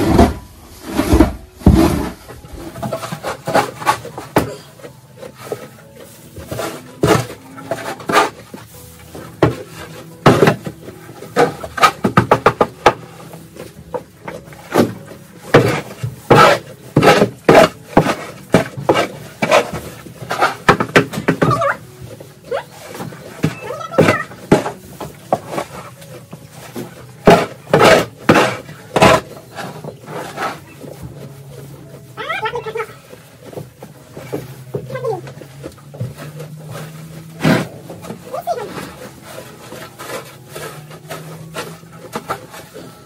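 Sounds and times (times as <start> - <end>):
shovel scraping on floor: 0.0 - 43.0.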